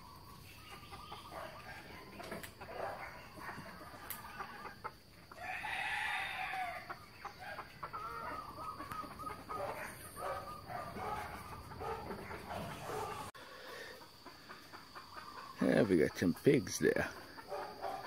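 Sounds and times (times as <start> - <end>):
chickens clucking: 0.0 - 18.0
rooster crowing: 5.4 - 13.7.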